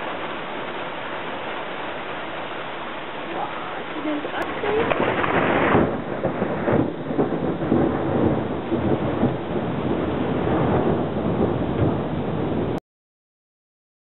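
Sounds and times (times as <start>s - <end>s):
rain hissing: 0.0s - 12.8s
thunder rumbling: 3.3s - 12.8s.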